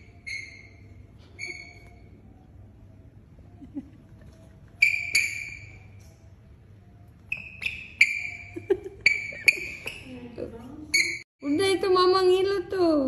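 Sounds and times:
sneakers squeaking on tiled floor: 0:00.0 - 0:02.2, 0:04.8 - 0:06.2, 0:07.2 - 0:11.3.

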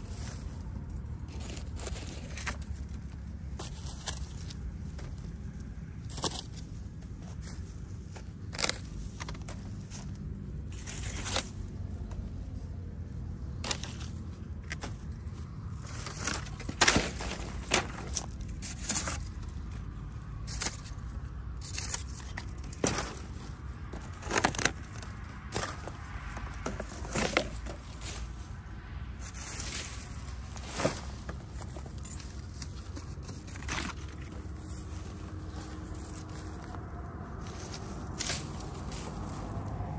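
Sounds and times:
steady low rumble: 0:00.0 - 0:39.9
plastic and paper rustling: 0:13.6 - 0:28.6, 0:29.2 - 0:39.9
metal blade scraping ground: 0:15.7 - 0:19.8.

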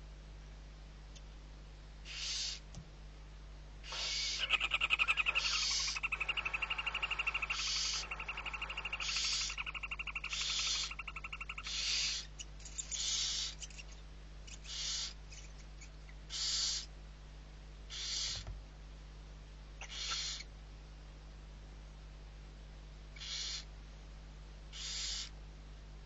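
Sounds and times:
owl nestlings hissing begging calls: 0:02.0 - 0:02.7, 0:03.8 - 0:16.9, 0:17.9 - 0:18.4, 0:19.8 - 0:20.5, 0:23.2 - 0:23.7, 0:24.7 - 0:25.3
fast twittering chatter: 0:03.9 - 0:13.9.

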